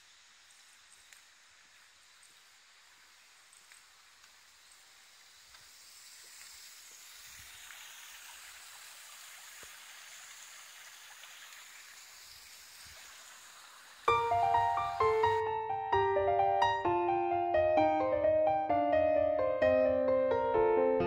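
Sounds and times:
stream water rushing: 0:00.2 - 0:15.5
piano music: 0:14.1 - 0:21.0.

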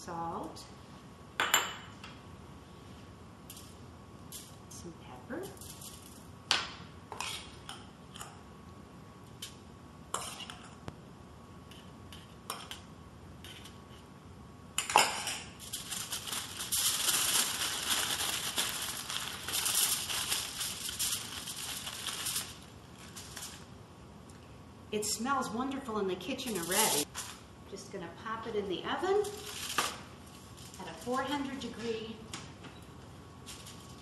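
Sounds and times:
aluminum foil crinkling: 0:15.6 - 0:23.7, 0:26.4 - 0:27.4, 0:29.2 - 0:31.8, 0:33.4 - 0:34.0.

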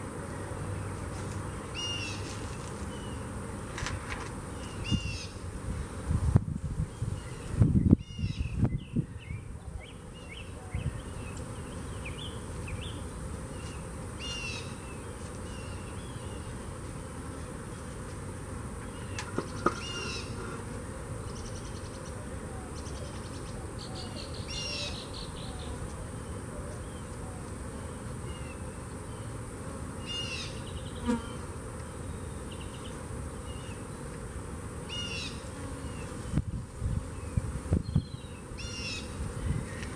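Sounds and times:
honeybees buzzing: 0:00.0 - 0:39.9
bird calling: 0:18.9 - 0:20.6, 0:21.3 - 0:25.8, 0:37.9 - 0:39.9.

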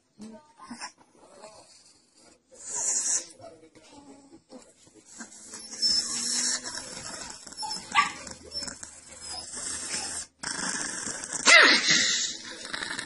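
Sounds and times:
small dog barking and yapping: 0:07.7 - 0:08.3.

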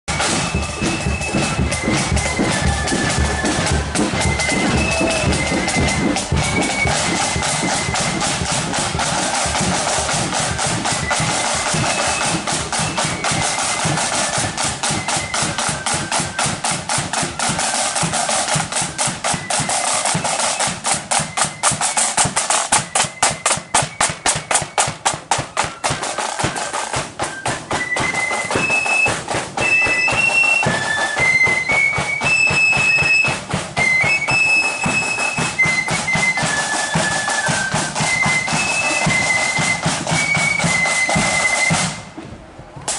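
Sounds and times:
bass drum: 0:00.1 - 0:11.0
snare drums: 0:00.1 - 0:42.9.

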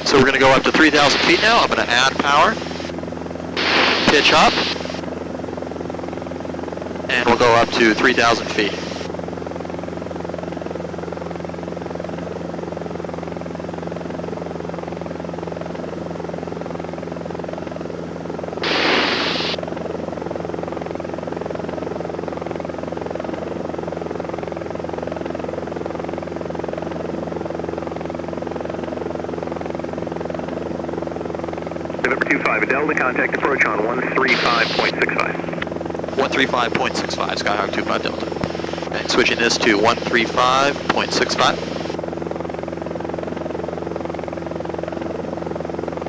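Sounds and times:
airplane engine and propeller drone: 0:00.0 - 0:46.0
short burst of hiss: 0:18.6 - 0:19.6.

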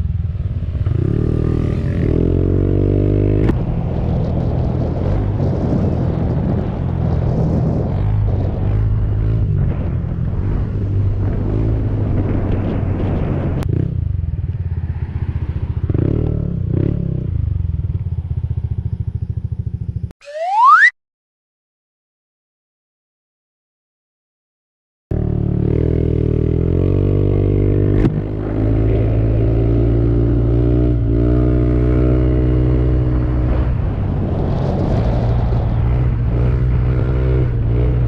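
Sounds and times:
motorcycle engine running: 0:13.6 - 0:20.1.

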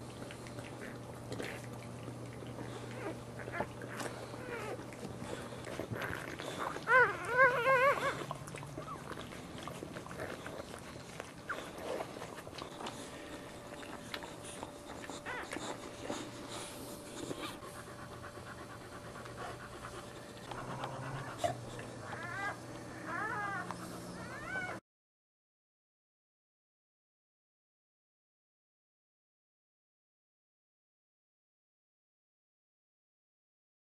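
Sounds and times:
dog panting: 0:00.0 - 0:24.8
puppies squealing: 0:02.9 - 0:18.7, 0:20.4 - 0:24.8.

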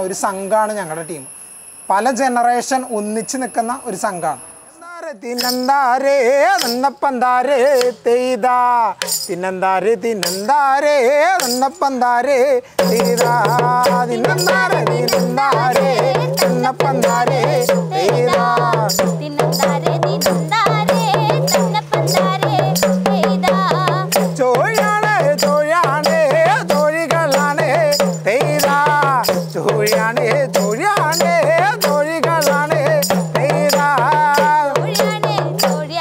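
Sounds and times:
man singing: 0:04.8 - 0:36.0
small drum beaten with stick: 0:09.0 - 0:09.3, 0:10.2 - 0:10.5, 0:12.8 - 0:36.0
group singing in chorus: 0:12.8 - 0:36.0.

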